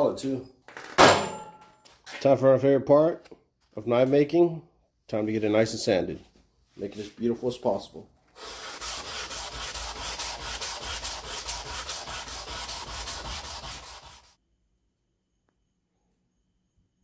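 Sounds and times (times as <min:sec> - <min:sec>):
sandpaper rubbing on steel blade: 0:08.4 - 0:14.4.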